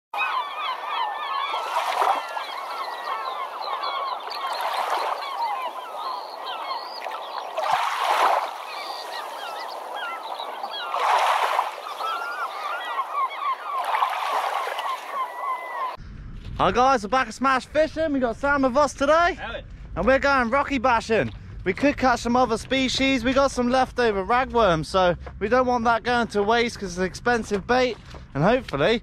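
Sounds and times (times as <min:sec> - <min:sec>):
birds chirping: 0:00.2 - 0:16.0
waves washing in: 0:01.4 - 0:15.5.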